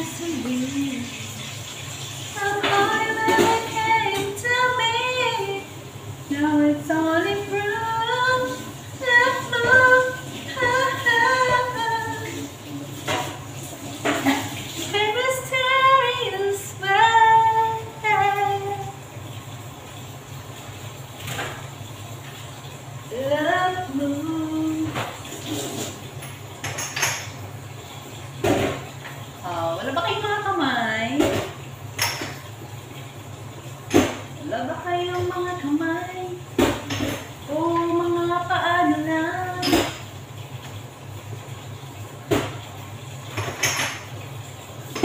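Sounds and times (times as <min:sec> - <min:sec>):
woman singing unaccompanied: 0:00.0 - 0:01.4, 0:02.4 - 0:05.7, 0:06.3 - 0:12.8, 0:14.9 - 0:19.0, 0:23.1 - 0:25.0, 0:34.4 - 0:36.4, 0:37.5 - 0:39.9
dishes and utensils clinking: 0:24.9 - 0:27.4.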